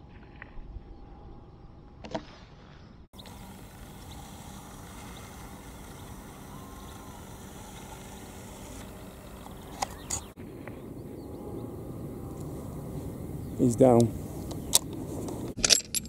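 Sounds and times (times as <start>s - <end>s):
faint low hum: 2.6s - 15.6s.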